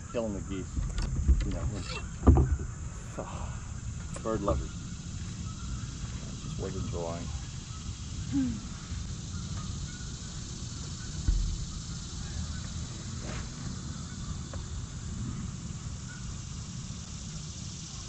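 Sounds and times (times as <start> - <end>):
wind rumbling on microphone: 0.0 - 17.8
high hiss of insects: 0.0 - 18.0
low thud: 0.7 - 2.8, 11.1 - 13.5.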